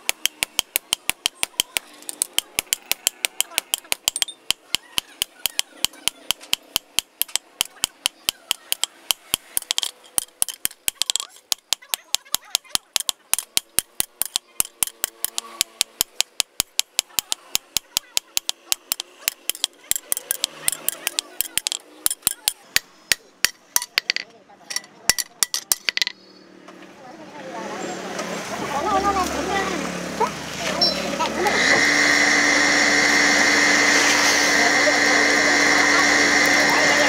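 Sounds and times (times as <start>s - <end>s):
hammer striking steel on anvil: 0.0s - 26.1s
faint voices: 34.2s - 37.0s.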